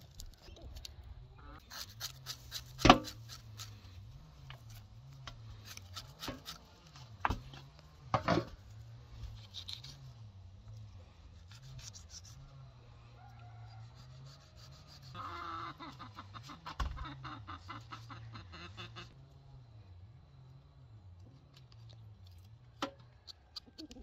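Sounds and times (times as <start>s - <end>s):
knife scraping charred meat: 1.6s - 3.9s, 4.5s - 7.1s, 9.3s - 10.1s, 11.4s - 12.4s, 13.9s - 15.3s.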